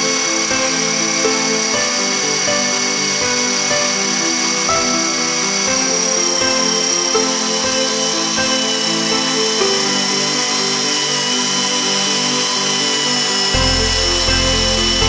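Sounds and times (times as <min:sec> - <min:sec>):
background music with bass line: 0:13.6 - 0:15.0.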